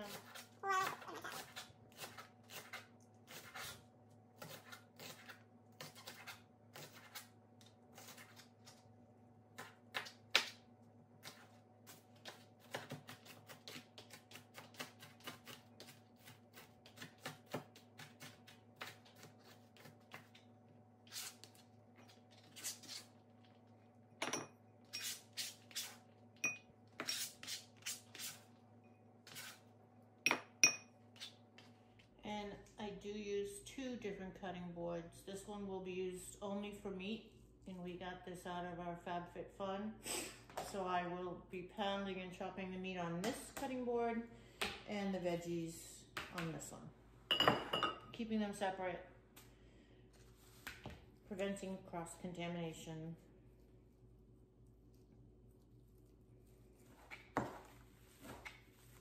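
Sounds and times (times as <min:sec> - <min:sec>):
faint steady hum: 0:00.0 - 0:59.0
knife chopping on cutting board: 0:11.2 - 0:20.4.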